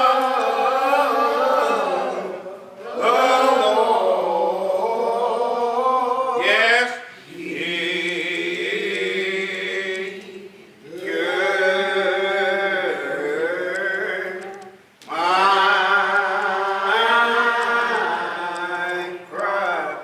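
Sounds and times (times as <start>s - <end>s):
person singing unaccompanied: 7.7s - 20.0s.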